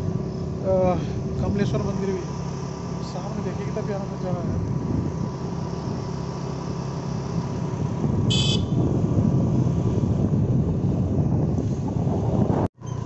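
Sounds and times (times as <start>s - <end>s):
motorbike engine and road noise: 0.0s - 13.0s
high-pitched horn beep: 8.3s - 8.8s.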